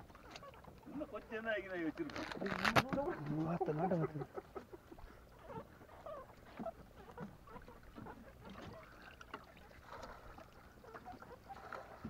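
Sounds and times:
water lapping against boat hull: 0.0s - 12.0s.

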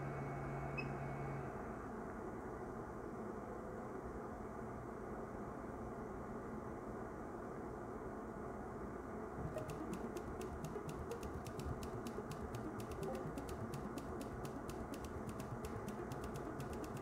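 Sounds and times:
light ticks: 9.4s - 17.0s.

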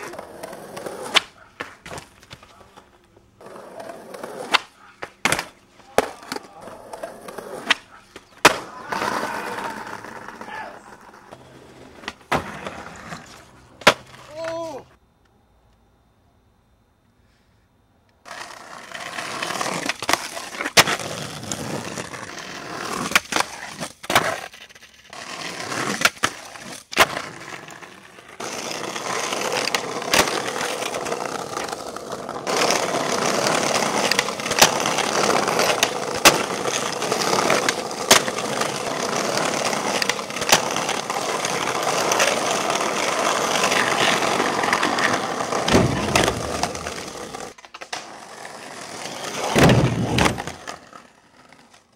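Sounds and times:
skateboard tail clacks: 0.0s - 14.8s, 28.0s - 51.9s
skateboard wheels rolling on pavement: 0.0s - 51.9s.

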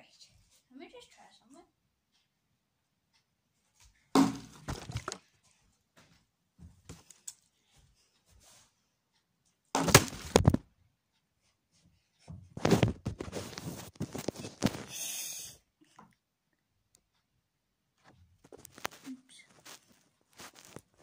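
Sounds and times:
plastic bottle clattering on wood: 4.2s - 5.3s, 9.8s - 10.6s
rustling: 18.1s - 21.0s.

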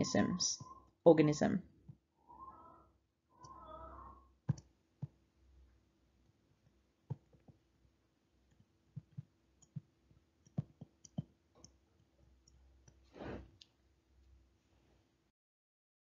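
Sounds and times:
stylus tapping on tablet screen: 4.4s - 5.3s, 6.2s - 7.7s, 8.4s - 13.0s.

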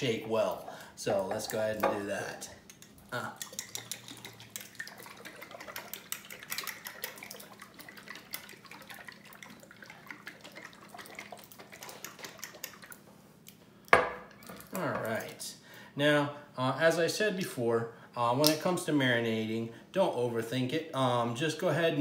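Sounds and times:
sauce sloshing in shaken bottle: 3.3s - 13.0s.

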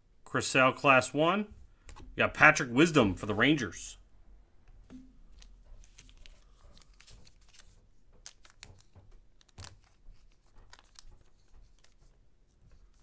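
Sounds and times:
card wrappers crinkling: 5.3s - 12.2s
soft clicks of trading cards: 5.3s - 13.0s.

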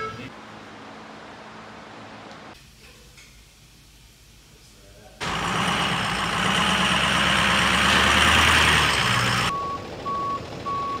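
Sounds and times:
truck engine running with hiss: 0.0s - 11.0s
reversing alarm beeps: 9.5s - 11.0s.

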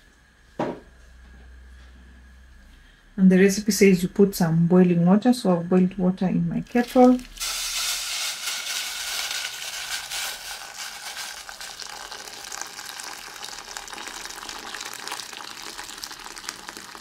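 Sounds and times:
water pouring into a metal pot: 6.8s - 17.0s.

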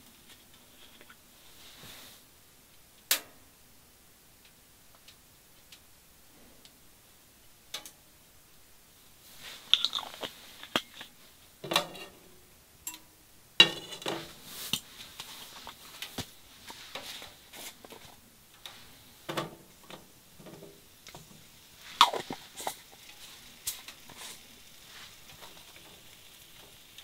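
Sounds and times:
frying pan clinks and rattles: 11.6s - 12.2s, 13.6s - 14.8s.

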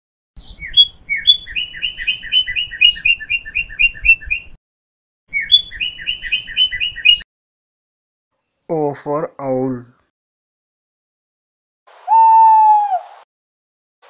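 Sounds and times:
small songbird singing: 0.4s - 4.6s, 5.3s - 7.2s.

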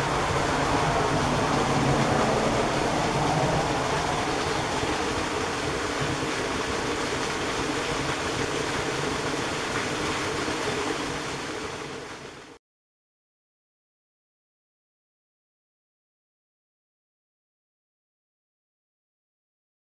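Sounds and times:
waterfall splashing on rock: 0.0s - 12.6s.

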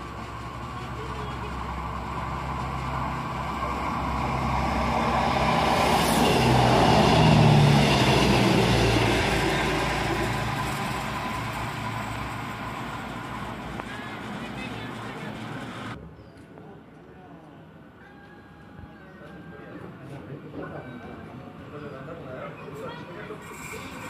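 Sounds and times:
low hum: 0.0s - 16.0s
train passing: 0.0s - 16.0s, 21.1s - 24.0s.

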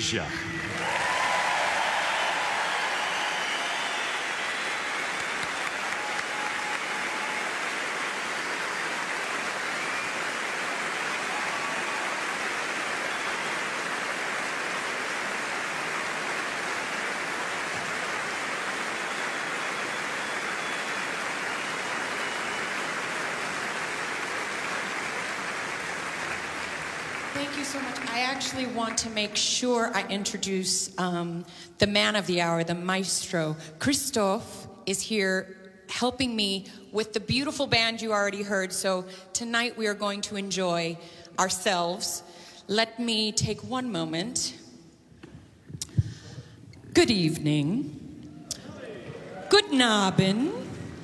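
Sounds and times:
large audience applauding: 0.0s - 29.2s.

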